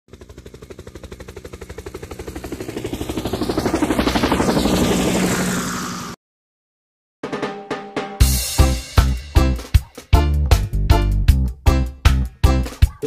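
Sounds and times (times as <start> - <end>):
helicopter rotor chopping: 0.1 - 6.2.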